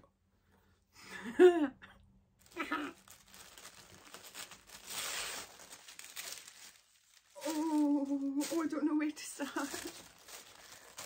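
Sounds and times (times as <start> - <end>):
tissue paper crinkling and tearing: 2.4 - 11.0.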